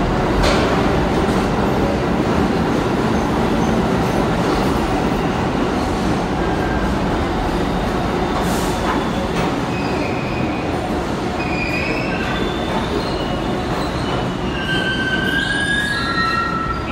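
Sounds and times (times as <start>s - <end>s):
subway train rumbling on rails: 0.0s - 16.9s
high-pitched wheel squeals: 11.4s - 16.9s.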